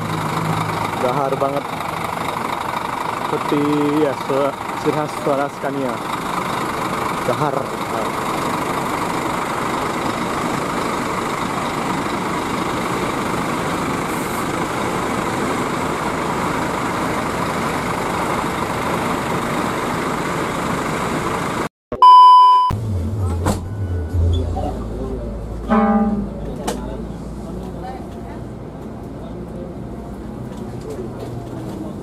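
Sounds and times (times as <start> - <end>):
bus diesel engine idling: 0.0 - 21.7, 22.8 - 32.0
loud test beep: 21.9 - 22.9, 23.6 - 24.8, 25.7 - 26.4.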